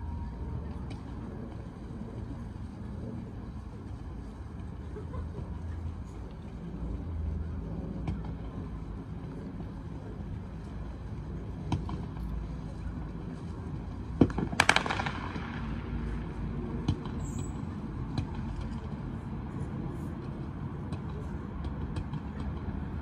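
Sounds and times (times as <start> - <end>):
steady low rumble: 0.0 - 23.0
distant fireworks bangs and cracks: 13.8 - 19.1.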